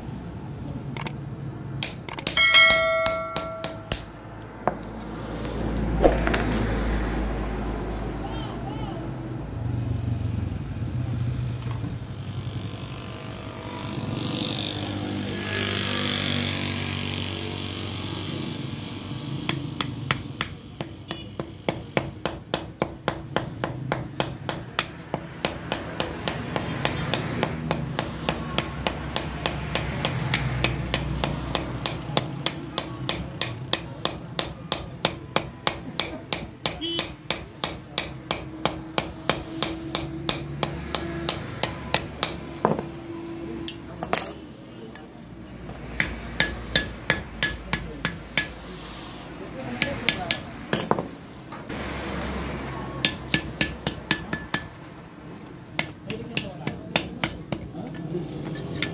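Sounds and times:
hammer striking metal: 0:01.8 - 0:04.2, 0:19.5 - 0:42.9, 0:45.7 - 0:48.6, 0:49.8 - 0:51.6, 0:53.0 - 0:54.9, 0:55.8 - 0:58.9.

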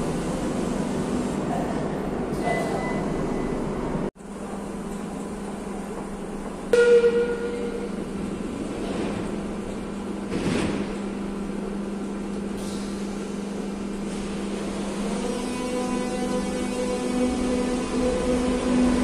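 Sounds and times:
standing train hum: 0:00.0 - 0:19.0
train rumbling to a stop: 0:00.0 - 0:19.0.

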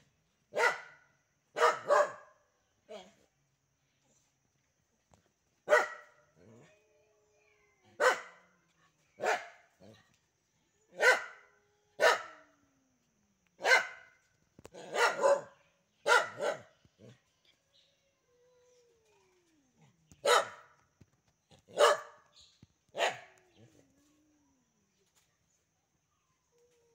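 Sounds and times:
dog barking: 0:00.5 - 0:03.1, 0:05.6 - 0:06.2, 0:07.9 - 0:08.5, 0:09.2 - 0:09.8, 0:10.9 - 0:12.6, 0:13.6 - 0:16.8, 0:20.2 - 0:20.8, 0:21.7 - 0:22.3, 0:22.9 - 0:23.4.

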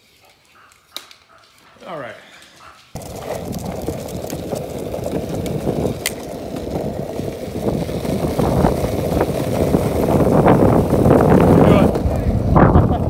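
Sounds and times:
road rumble on asphalt: 0:02.4 - 0:13.0
wind on microphone: 0:03.0 - 0:13.0.

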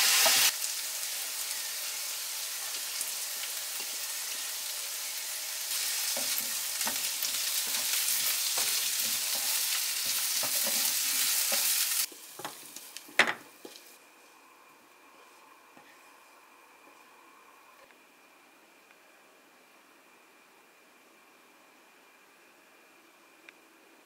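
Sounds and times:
potatoes sizzling in frying pan: 0:00.0 - 0:14.0.

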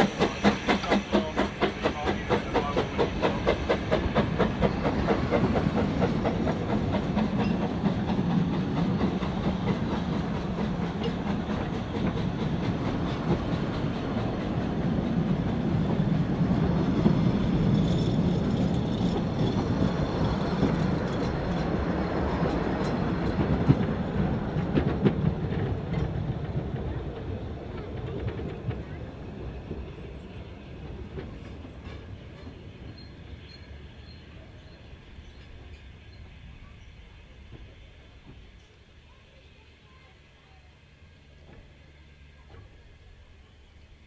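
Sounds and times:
train wheels rumbling: 0:00.0 - 0:44.0.

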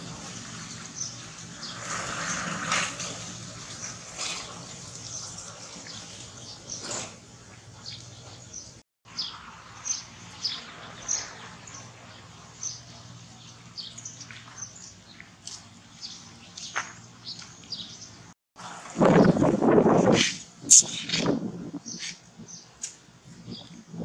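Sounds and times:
small birds chirping: 0:03.7 - 0:18.3, 0:20.7 - 0:23.9.

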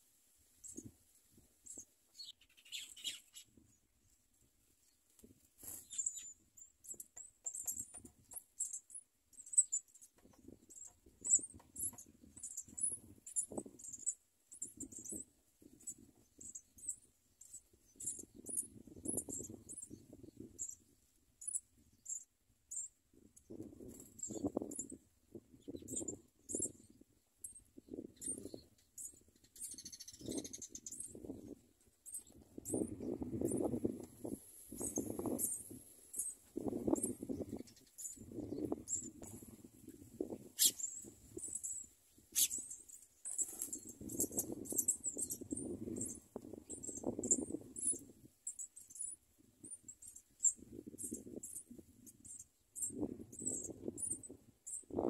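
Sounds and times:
nestlings begging chirps: 0:01.7 - 0:03.4, 0:05.8 - 0:09.9, 0:28.1 - 0:31.3, 0:40.5 - 0:50.6.

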